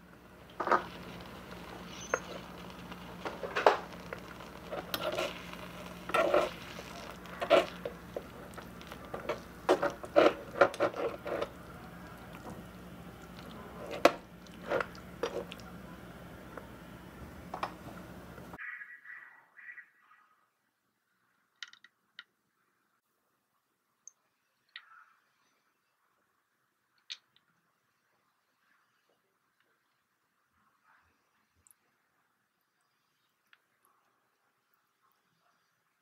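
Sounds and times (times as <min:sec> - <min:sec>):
utensil scraping a metal frying pan: 0:00.5 - 0:12.6.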